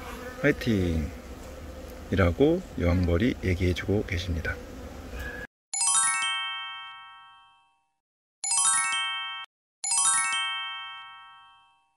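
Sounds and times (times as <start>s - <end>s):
honeybee hum: 0.0s - 5.5s
bell-like chime jingle: 5.8s - 11.9s.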